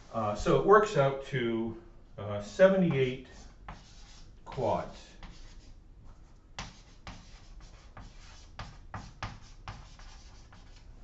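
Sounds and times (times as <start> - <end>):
chalk scratching on blackboard: 2.5 - 10.9.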